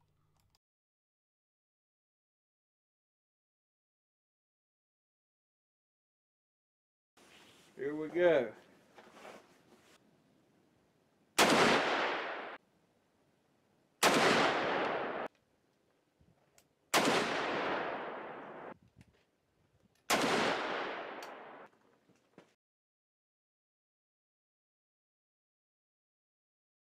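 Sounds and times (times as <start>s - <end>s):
rifle shots echoing: 11.4s - 12.6s, 14.0s - 15.3s, 16.9s - 18.8s, 20.1s - 21.7s.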